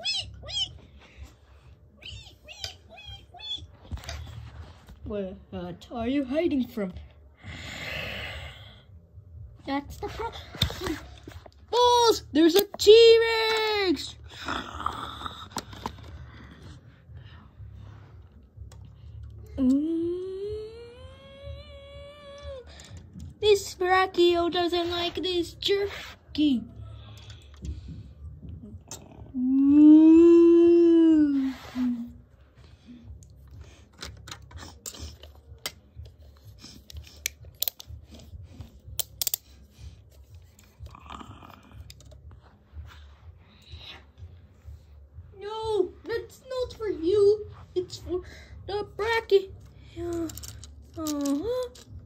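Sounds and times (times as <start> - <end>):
plastic toy pieces clicking: 39.0 - 39.4, 50.1 - 52.0.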